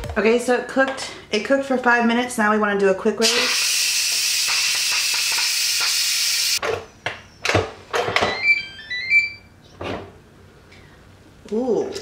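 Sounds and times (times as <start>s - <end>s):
pressure cooker steam hissing: 3.2s - 6.6s.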